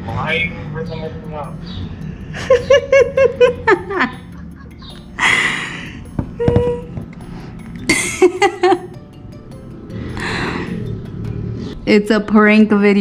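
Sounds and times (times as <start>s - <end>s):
garbled man's voice through phone: 0.1s - 1.5s.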